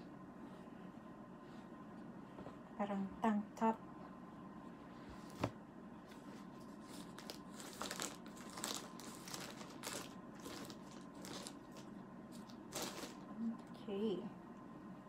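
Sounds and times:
plastic bag crinkling and rustling: 6.2 - 13.4.

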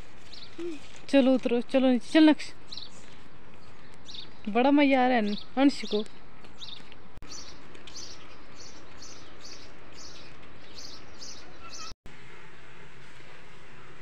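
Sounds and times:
bird chirping: 3.6 - 4.6, 5.2 - 12.0.

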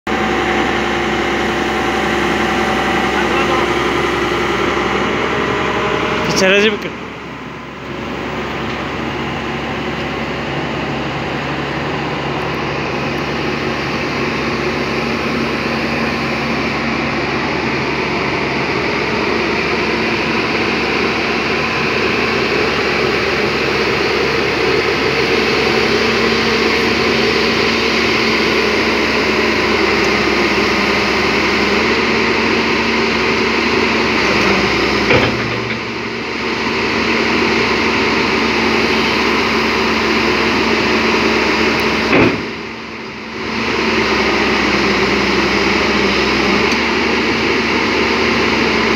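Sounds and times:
excavator diesel engine running: 0.1 - 48.9
loud metal clunk: 34.4 - 36.0, 42.1 - 42.6.

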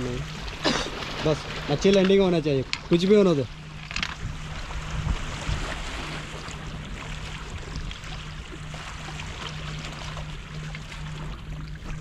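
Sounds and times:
low rumble: 0.0 - 12.0
sea water washing against rocks: 0.1 - 3.0.

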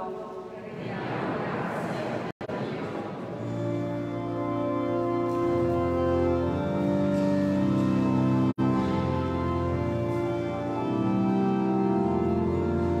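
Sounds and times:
church organ chords: 3.3 - 13.0.

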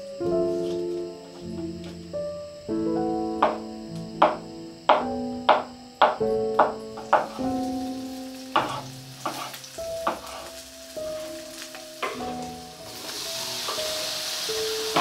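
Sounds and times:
slow piano music: 0.0 - 15.0
food sizzling in a frying pan: 6.7 - 15.0.

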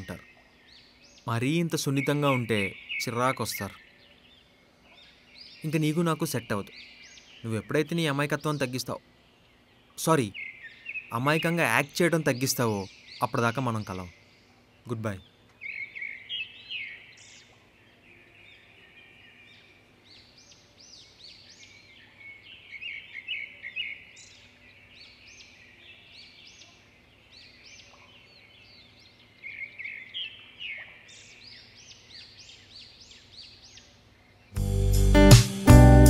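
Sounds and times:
faint steady hum: 0.0 - 13.2
small birds chirping: 0.0 - 35.7.

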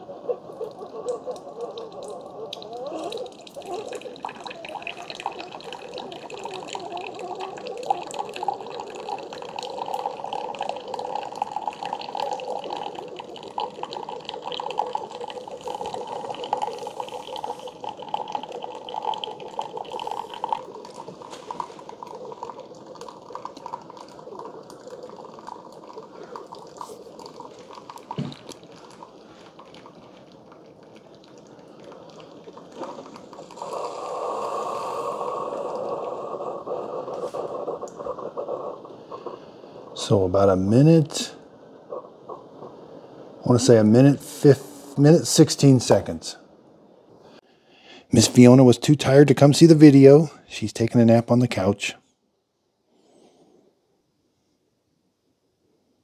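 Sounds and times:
coffee pouring into a mug: 0.0 - 42.8.

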